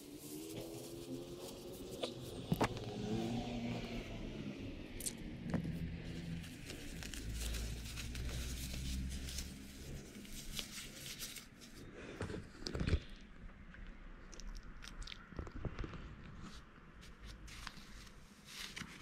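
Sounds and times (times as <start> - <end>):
foam mesh crinkling: 6.1 - 11.8.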